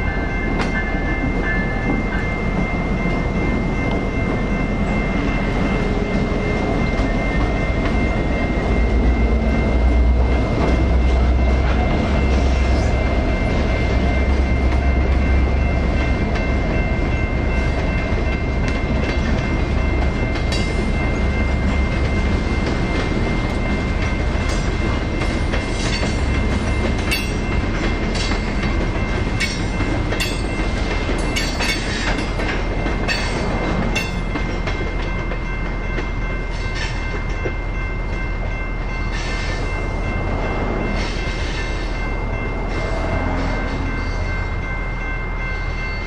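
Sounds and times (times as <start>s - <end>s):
crossing bell ringing: 0.0s - 46.0s
train wheels clacking over rail joints: 22.0s - 37.6s.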